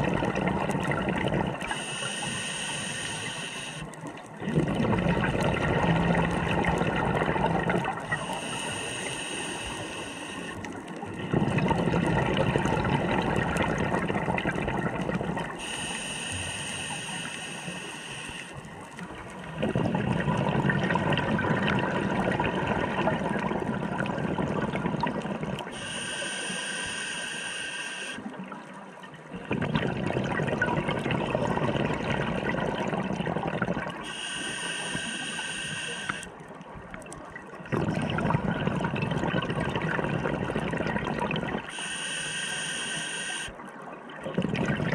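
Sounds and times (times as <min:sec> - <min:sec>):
exhaled bubbles rushing: 0:00.0 - 0:01.9, 0:04.0 - 0:08.4, 0:10.5 - 0:15.8, 0:18.6 - 0:25.8, 0:28.2 - 0:34.1, 0:36.1 - 0:41.8, 0:43.6 - 0:44.9
regulator inhalation hiss: 0:01.6 - 0:04.0, 0:08.1 - 0:10.6, 0:15.5 - 0:18.7, 0:25.7 - 0:28.2, 0:34.0 - 0:36.4, 0:41.7 - 0:43.6.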